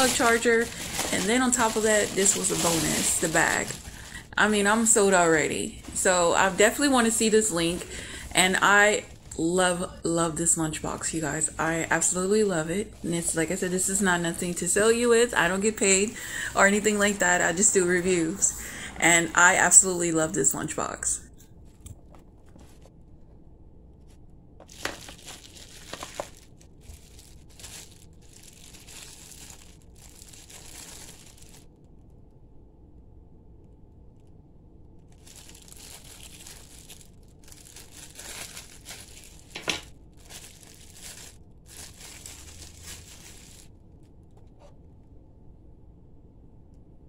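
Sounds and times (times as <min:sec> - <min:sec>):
plastic wrapping crinkling: 0:00.0 - 0:18.7, 0:24.0 - 0:32.2, 0:35.0 - 0:44.2.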